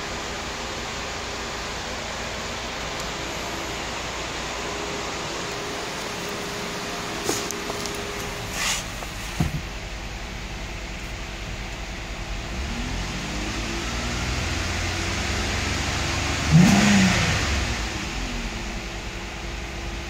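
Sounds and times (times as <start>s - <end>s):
car engine revving: 12.0s - 20.0s.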